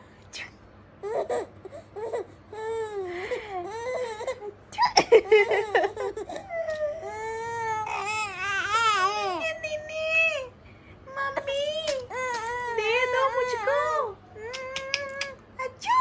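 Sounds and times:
baby squealing and wailing: 0:06.2 - 0:09.5.

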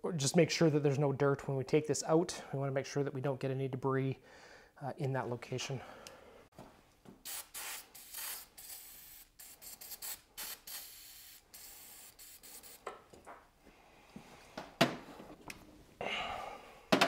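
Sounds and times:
aerosol spray hissing: 0:07.2 - 0:12.9.

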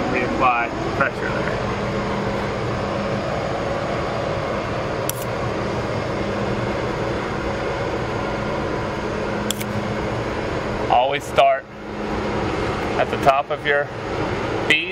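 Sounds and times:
ventilation unit humming: 0:00.0 - 0:14.9
brief click: 0:09.5 - 0:09.7.

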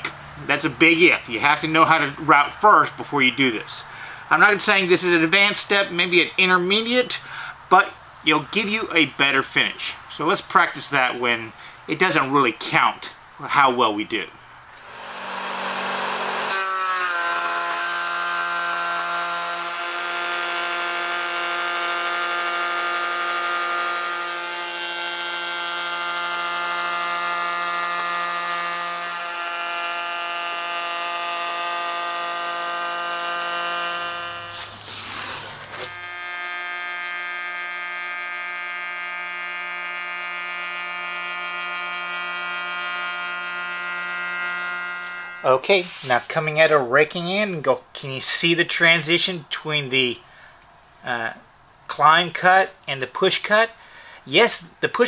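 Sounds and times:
router whining: 0:14.7 - 0:46.0.

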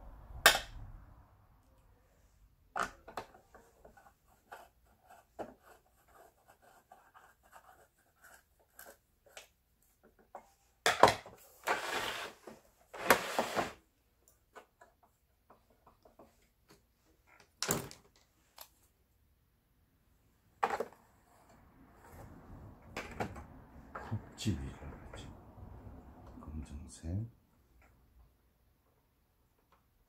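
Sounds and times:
machine scraping on workbench: 0:11.6 - 0:13.8.

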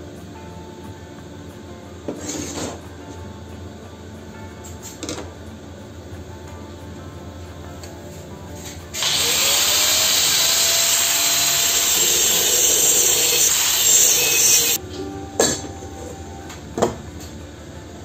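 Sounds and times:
angle grinder cutting steel: 0:09.0 - 0:14.8.

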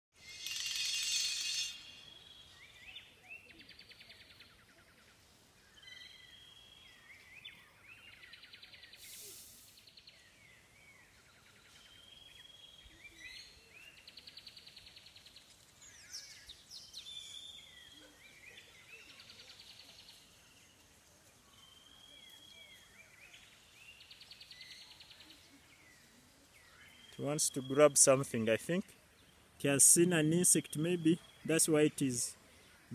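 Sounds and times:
songbird whistle and buzzy trill: 0:00.2 - 0:03.0
short bird chirps: 0:07.4 - 0:10.2.

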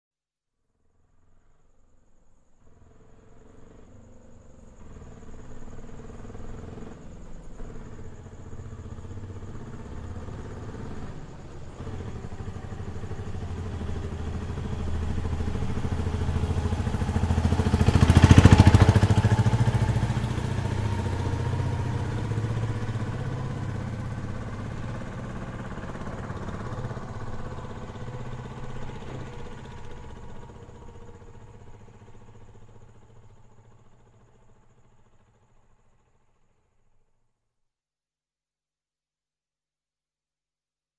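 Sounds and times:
auto rickshaw engine passing: 0:02.4 - 0:36.3.

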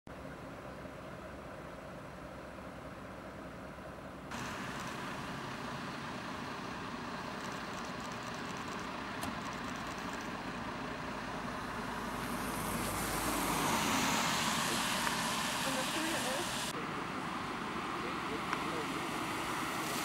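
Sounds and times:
fire engines running: 0:00.1 - 0:20.0
traffic noise: 0:00.1 - 0:20.0
truck tyre hiss on wet road: 0:04.3 - 0:07.3, 0:10.5 - 0:16.8, 0:17.4 - 0:20.0.

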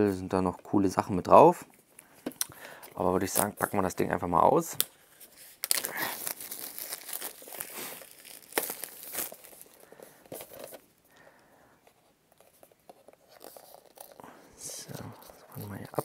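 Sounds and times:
plastic shrink wrap tearing: 0:04.8 - 0:10.8, 0:13.2 - 0:14.2, 0:14.8 - 0:16.0.

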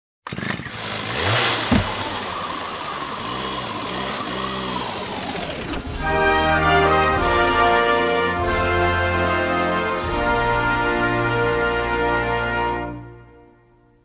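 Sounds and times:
chainsaw engine revving: 0:00.2 - 0:07.2
brass music: 0:05.9 - 0:13.7.

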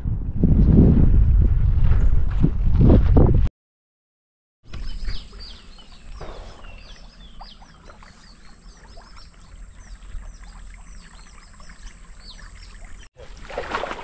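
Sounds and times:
low rumble of wind or water: 0:00.0 - 0:03.5, 0:04.7 - 0:14.0
small birds chirping: 0:04.7 - 0:13.1.

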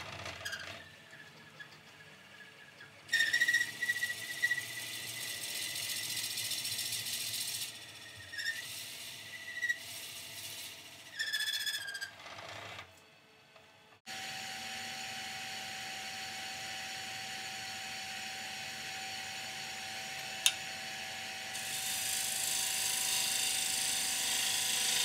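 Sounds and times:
lathe tool scraping and squealing: 0:00.0 - 0:12.8.

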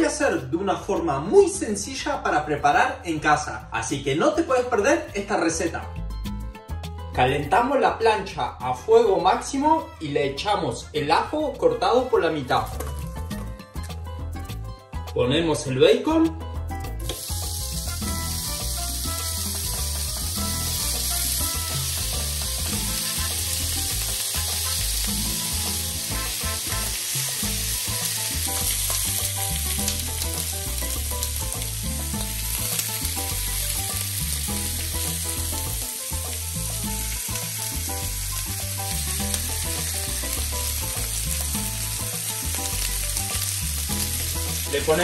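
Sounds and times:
bacon sizzling in a grill pan: 0:17.0 - 0:45.0.

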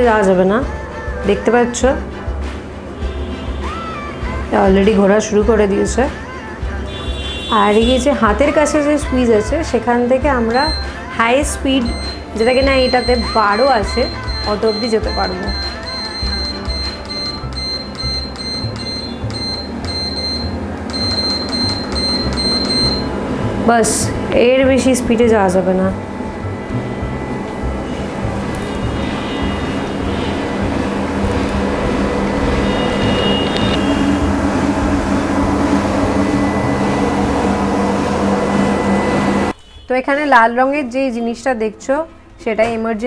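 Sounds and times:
treadmill console beeping: 0:10.5 - 0:23.6, 0:25.7 - 0:39.6
treadmill motor hum: 0:11.6 - 0:39.6.

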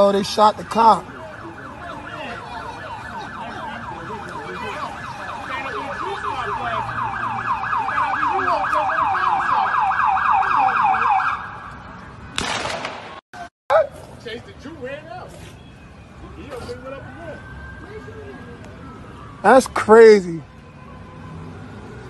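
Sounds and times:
siren in fast yelp mode: 0:00.0 - 0:11.8, 0:16.8 - 0:22.0.

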